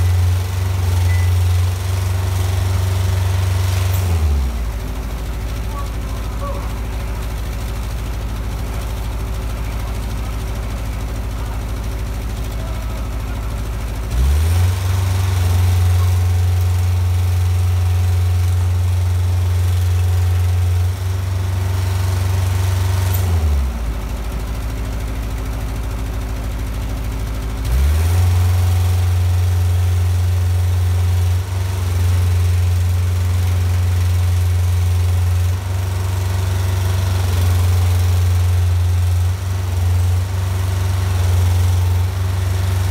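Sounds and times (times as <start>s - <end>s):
engine running hydraulics: 0.0s - 24.1s.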